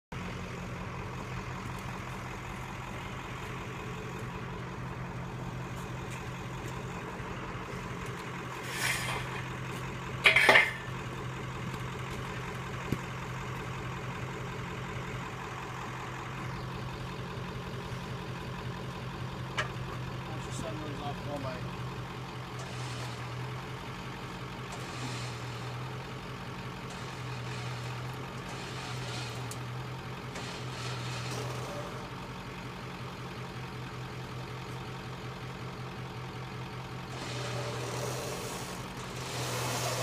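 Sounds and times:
vehicle engine idling: 0.1s - 40.0s
loud metallic clanks of a jack: 10.2s - 11.0s.

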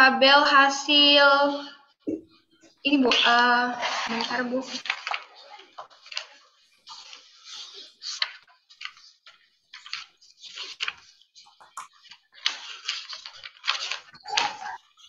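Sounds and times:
paper rustling: 3.0s - 15.0s.

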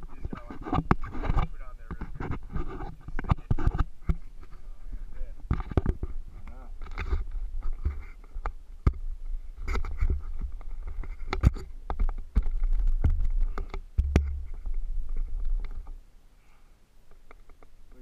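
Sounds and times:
sharp knocks and clicks: 0.3s - 4.2s, 9.7s - 16.0s
low rumble: 13.9s - 16.0s.

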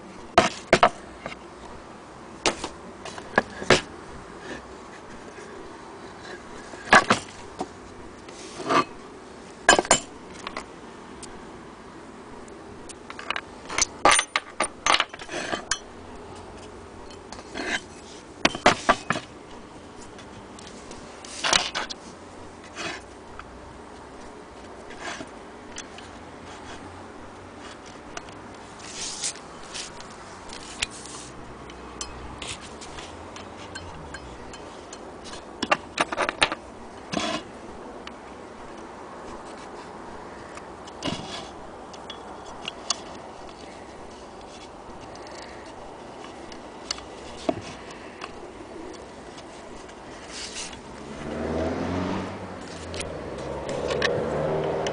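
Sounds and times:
knocks and scraping of wooden base: 17.4s - 19.3s.

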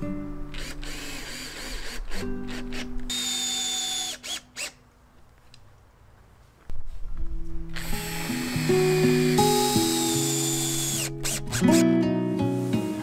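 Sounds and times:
power drill whining: 0.5s - 4.8s, 7.8s - 11.8s.

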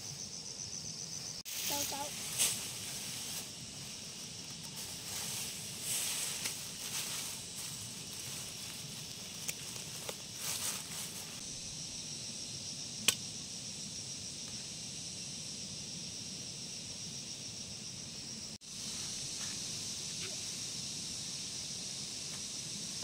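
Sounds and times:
high-pitched insect chorus: 0.0s - 23.0s
sharp click: 13.0s - 13.2s.

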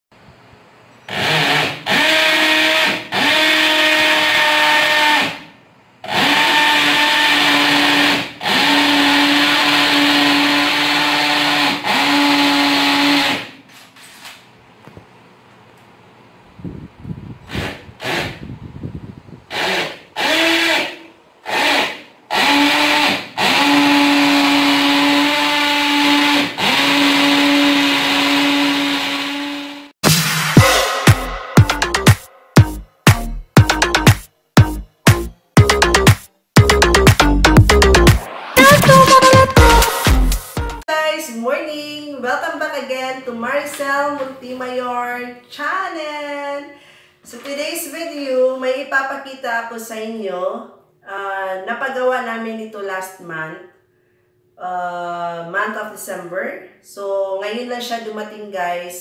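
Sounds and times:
electric drill running in bursts: 1.1s - 5.4s, 6.1s - 13.5s, 19.5s - 29.9s.

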